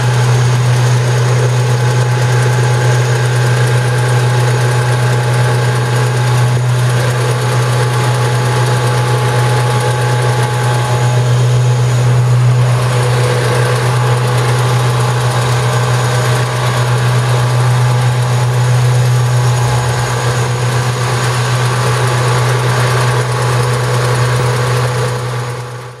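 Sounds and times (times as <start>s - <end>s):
truck engine droning: 0.0s - 26.0s
street traffic passing: 10.2s - 25.1s.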